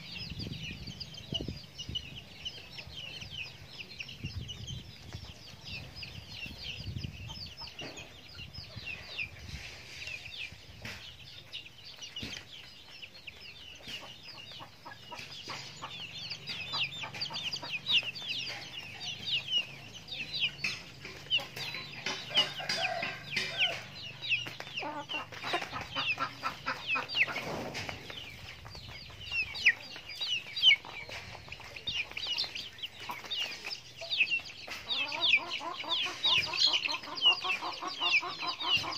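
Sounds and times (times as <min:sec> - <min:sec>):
chickens peeping and clucking: 0:00.0 - 0:38.9.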